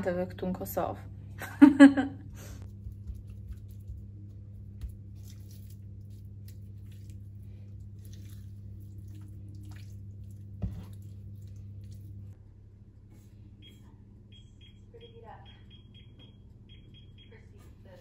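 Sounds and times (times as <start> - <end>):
low steady hum: 0.0 - 18.0
wet squishing of raw chicken: 2.8 - 12.4.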